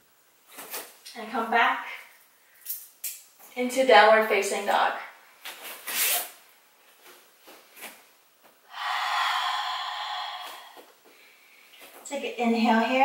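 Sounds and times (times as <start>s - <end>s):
woman breathing: 8.7s - 12.0s.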